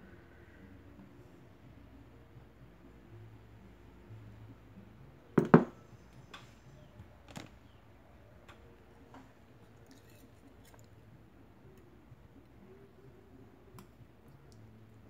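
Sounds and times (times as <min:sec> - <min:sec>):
plate knocking onto table: 0:05.4 - 0:05.8.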